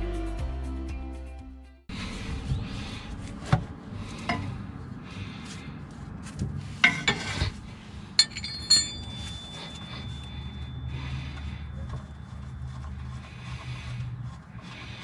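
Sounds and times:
hand tools clinking on metal: 8.2 - 11.5.

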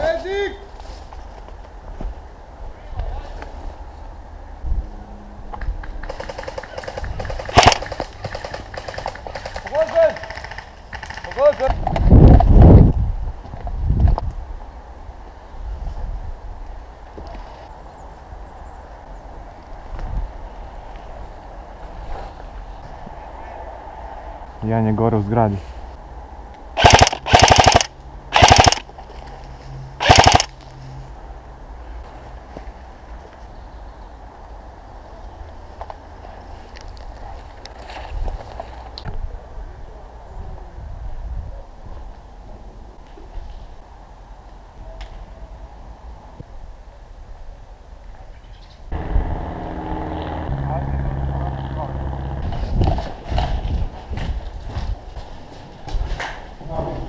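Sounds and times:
airsoft rifle full-auto bursts: 6.1 - 9.8, 26.8 - 28.8, 30.0 - 30.5
footsteps on concrete stairs: 53.0 - 56.6.

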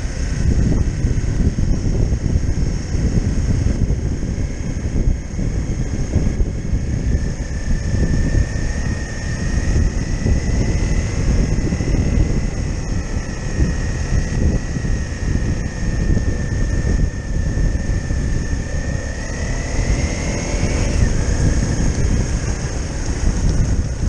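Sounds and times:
faint whine: 0.0 - 24.0
motorcycle engine running: 0.0 - 24.0
wind rushing over microphone: 0.0 - 24.0.

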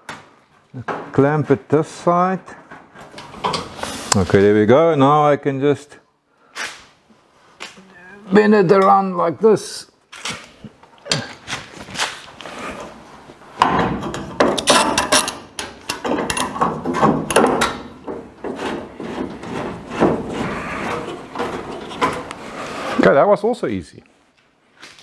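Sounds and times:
sheet steel scraping: 16.3 - 23.2.

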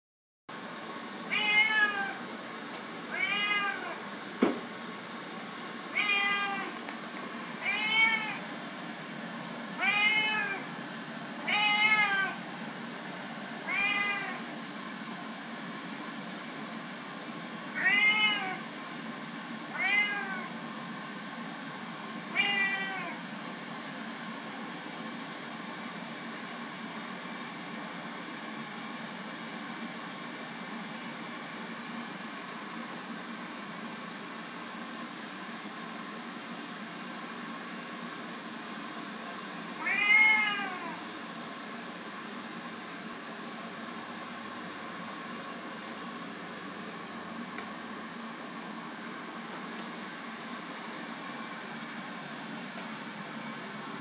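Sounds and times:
cat meowing: 1.3 - 2.2, 3.1 - 4.0, 5.9 - 6.8, 7.6 - 8.4, 9.8 - 10.7, 11.4 - 12.4, 13.6 - 14.5, 17.8 - 18.6, 19.7 - 20.5, 22.3 - 23.2, 39.8 - 41.0.

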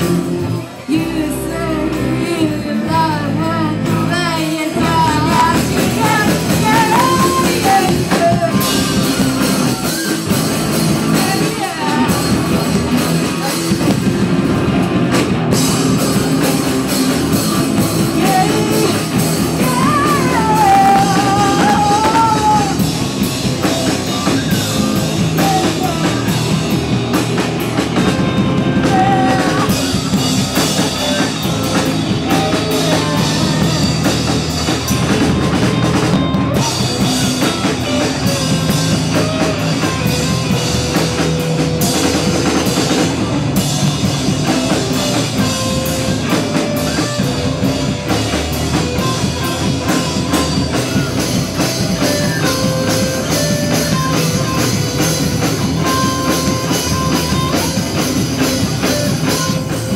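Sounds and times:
live rock band playing: 0.0 - 59.9
person singing: 0.5 - 10.0, 11.0 - 12.7, 17.3 - 22.9, 23.6 - 26.8, 28.0 - 35.3.

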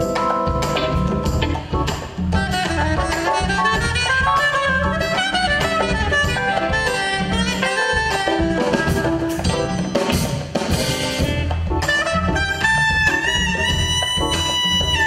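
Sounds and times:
congas and drums groove: 0.0 - 15.0
soprano saxophone playing fast: 2.4 - 9.9, 10.8 - 15.0.

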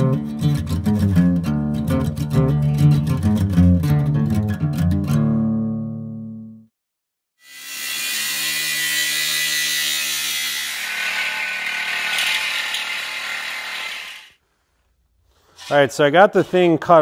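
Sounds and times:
power tool grinding steel: 7.4 - 14.4.

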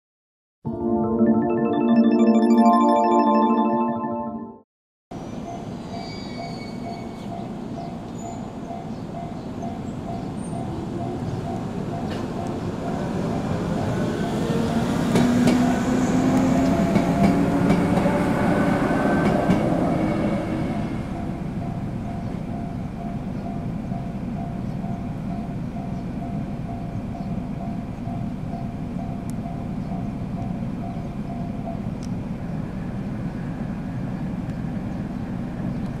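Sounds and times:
electric train rumbling past: 5.3 - 31.9.

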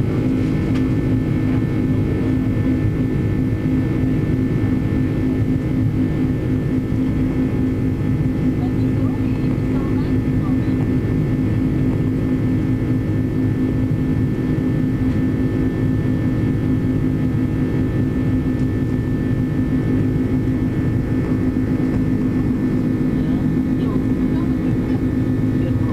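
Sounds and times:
jet engine cabin drone: 0.0 - 25.9.

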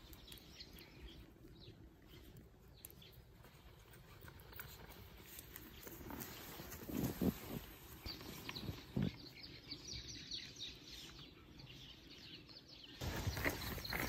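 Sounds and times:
small birds chirping: 0.0 - 14.0
footsteps in snow: 3.8 - 9.1, 13.0 - 14.0.

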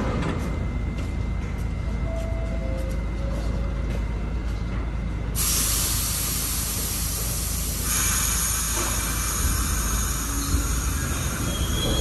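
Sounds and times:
train low rumble: 0.0 - 12.0
air brakes hissing: 5.4 - 12.0.

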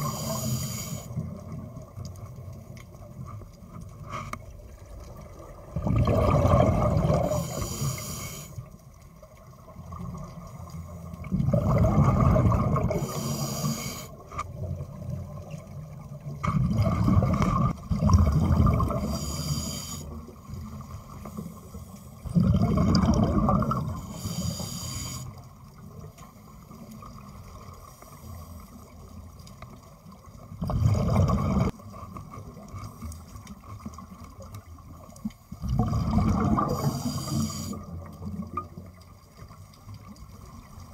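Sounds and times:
regulator air hiss: 0.0 - 1.2, 7.3 - 8.6, 13.0 - 14.2, 19.0 - 20.2, 24.0 - 25.4, 36.8 - 37.8
exhaled bubbles underwater: 4.5 - 26.1, 30.0 - 32.8, 33.5 - 40.9.

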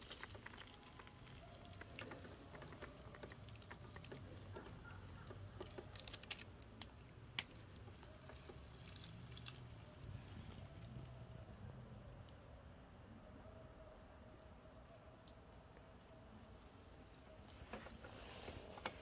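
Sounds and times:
crackles of dry leaves and grit: 0.0 - 12.7.

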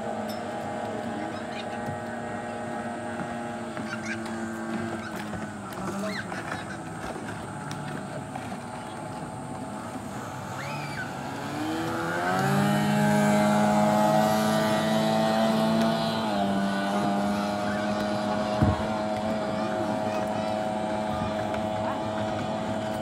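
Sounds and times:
racing boat outboard motor passing: 0.0 - 23.0.

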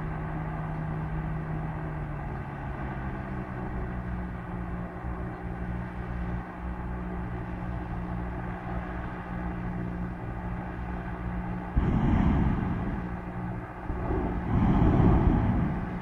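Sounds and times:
propeller engines droning: 0.0 - 16.0
loud rushing noise: 11.7 - 16.0.

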